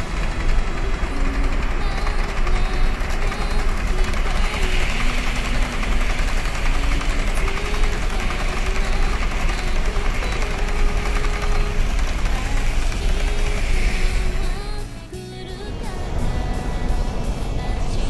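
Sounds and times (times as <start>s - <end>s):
electric motor hum: 0.0s - 18.0s
metal wheels rolling on rails: 0.0s - 18.0s.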